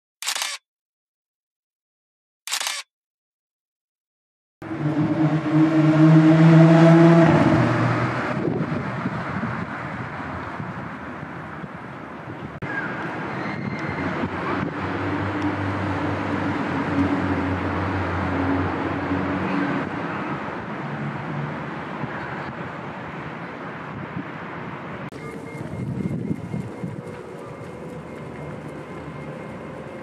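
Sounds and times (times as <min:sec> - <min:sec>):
road traffic: 0:04.6 - 0:30.0
engine low hum: 0:25.1 - 0:30.0.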